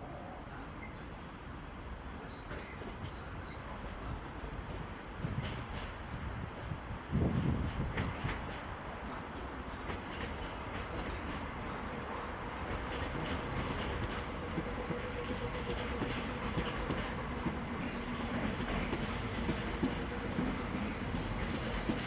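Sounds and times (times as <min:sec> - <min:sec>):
electric train rumble: 0:00.0 - 0:22.0.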